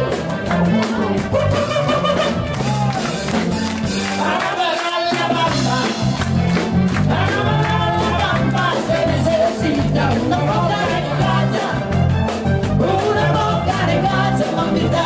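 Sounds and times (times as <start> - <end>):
upbeat dance music with singer: 4.1 - 15.0.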